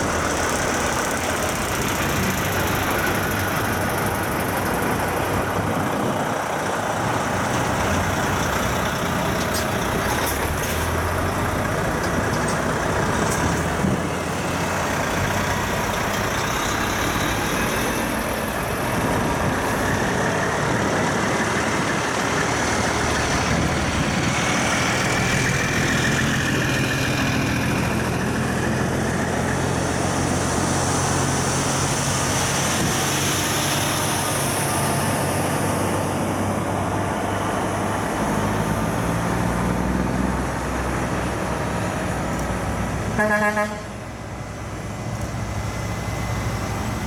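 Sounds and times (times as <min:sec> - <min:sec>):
trucks driving past: 0:00.0 - 0:47.0
loud horn blast: 0:43.1 - 0:44.1.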